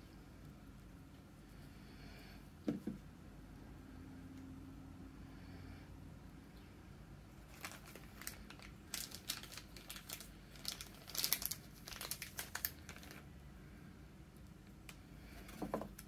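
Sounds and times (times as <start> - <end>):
plastic sleeve crinkling: 7.4 - 13.3.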